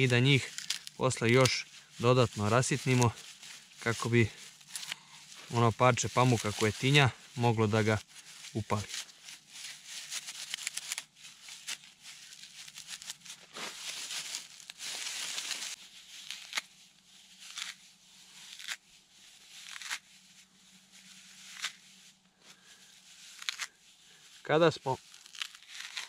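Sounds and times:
tree bark tearing and rubbing: 0.0 - 20.2, 21.3 - 21.9, 22.6 - 23.8, 24.9 - 26.0.

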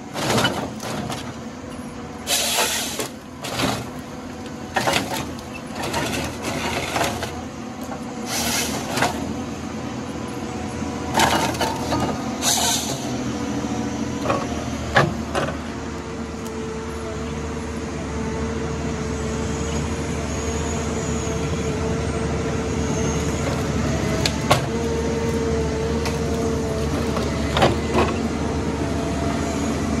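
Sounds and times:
diesel engine running: 0.0 - 30.0
hydraulic whine: 1.7 - 4.1, 4.7 - 9.5, 11.1 - 15.7.

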